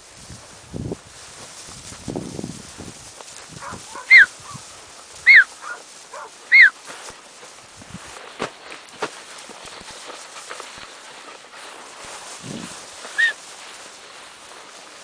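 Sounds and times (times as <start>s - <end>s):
puppy yelping: 3.6s - 4.6s, 5.2s - 6.8s, 13.1s - 13.4s
puppy whining: 3.7s - 4.3s, 5.3s - 5.8s, 6.5s - 6.7s, 13.1s - 13.4s.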